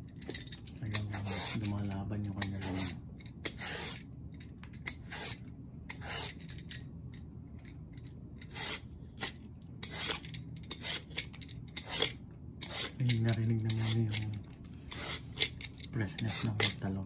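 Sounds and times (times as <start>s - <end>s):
peeler rasping eggplant skin: 0.8s - 4.1s, 4.8s - 6.5s, 8.4s - 17.0s.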